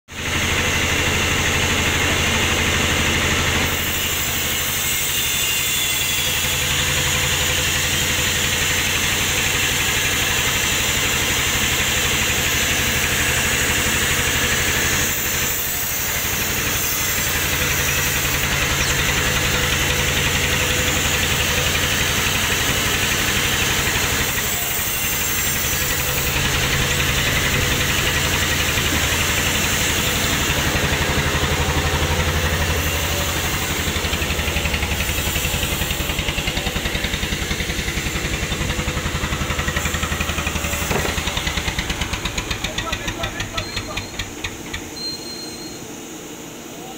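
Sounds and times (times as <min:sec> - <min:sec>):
band saw cutting log: 0:00.2 - 0:45.0.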